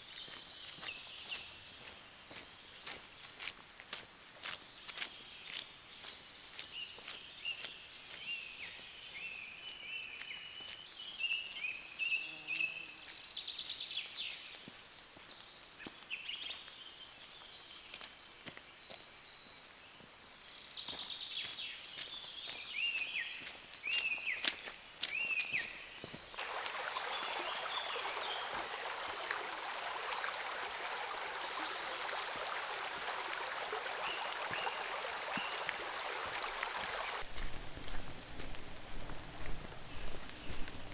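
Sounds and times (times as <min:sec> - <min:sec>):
small birds chirping: 0:00.0 - 0:37.3, 0:39.4 - 0:40.9
water rushing: 0:26.4 - 0:40.9.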